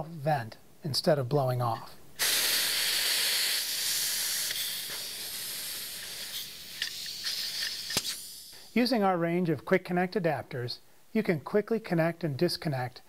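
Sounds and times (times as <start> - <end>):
pressure hissing from fitting: 2.2 - 8.9.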